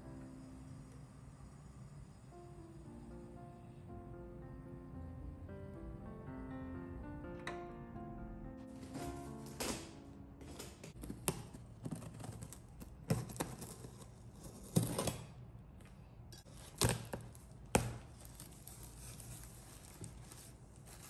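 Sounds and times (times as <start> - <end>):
cardboard rustling and scraping: 8.7 - 15.3, 16.5 - 21.0
packing tape tearing: 8.8 - 15.3, 16.5 - 21.0.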